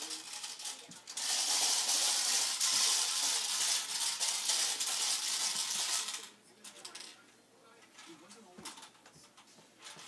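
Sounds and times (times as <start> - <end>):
toy popper rapid popping: 1.1 - 6.3.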